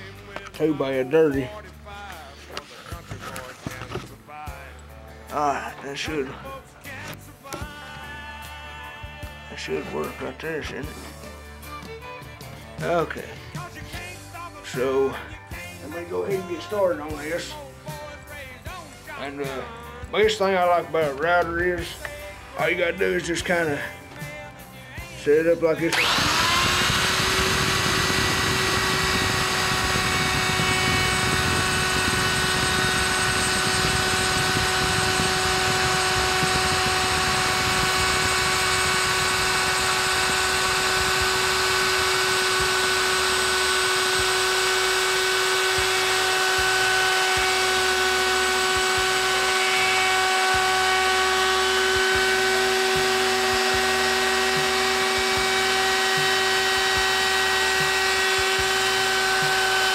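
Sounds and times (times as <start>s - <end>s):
electric router whining: 25.7s - 59.9s.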